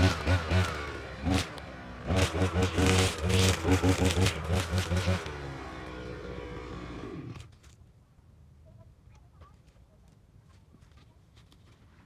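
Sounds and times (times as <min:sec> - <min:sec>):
blade crackling through grass: 0:00.0 - 0:06.0
brush cutter engine running: 0:00.0 - 0:07.5.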